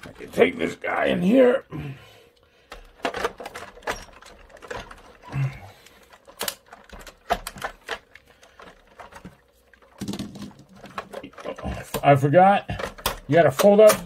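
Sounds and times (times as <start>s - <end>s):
plastic toy parts clicking: 2.7s - 9.3s, 10.0s - 14.0s.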